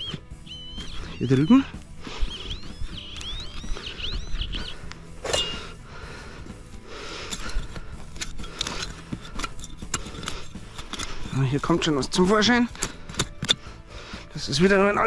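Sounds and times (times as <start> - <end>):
bird chirping: 0.0 - 5.8
hand tool scraping soil: 4.8 - 5.8, 7.1 - 13.8.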